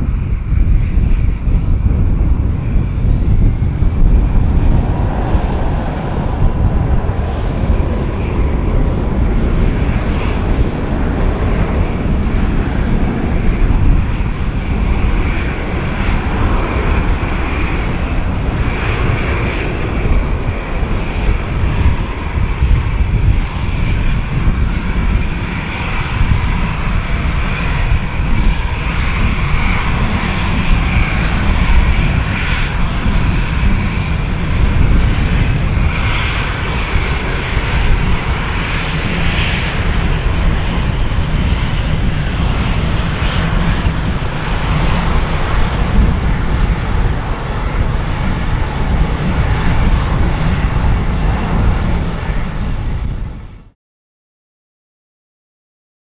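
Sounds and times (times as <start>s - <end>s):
jet engines roaring at takeoff: 0.0s - 53.8s.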